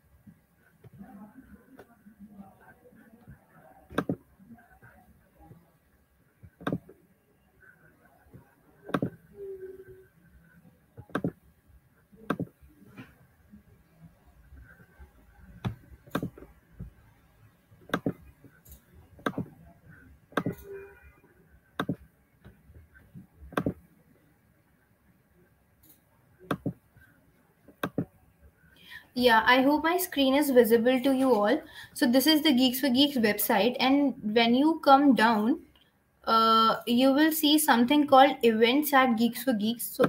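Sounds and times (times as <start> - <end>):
computer mouse clicks: 3.2 - 4.2, 6.4 - 7.0, 8.3 - 9.3, 11.0 - 11.4, 12.2 - 13.2, 14.6 - 16.9, 17.9 - 19.6, 20.4 - 20.8, 21.8 - 23.9, 25.8 - 26.8, 27.7 - 28.1.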